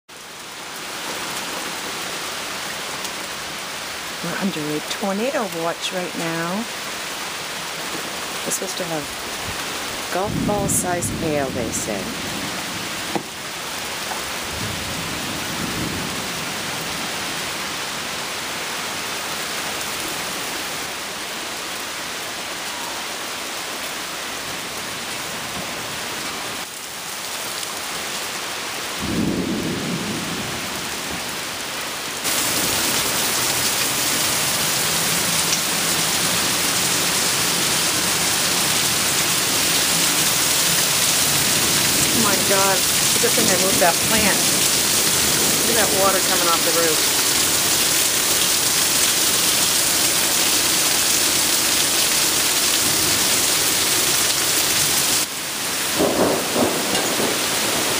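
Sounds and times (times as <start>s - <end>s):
heavy rain downpour: 0.1s - 57.9s
thunder rolling: 9.4s - 13.4s, 14.2s - 17.3s, 29.0s - 31.4s, 40.9s - 47.1s, 55.8s - 57.9s
water pouring off roof: 32.2s - 57.9s.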